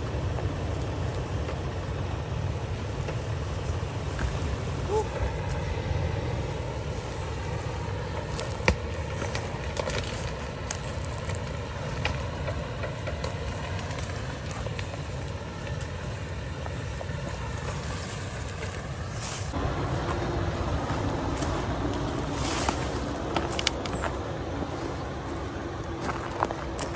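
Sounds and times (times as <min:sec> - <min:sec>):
engine low rumble: 0:00.0 - 0:26.9
brush snapping and crackling: 0:07.4 - 0:16.0, 0:21.3 - 0:24.2.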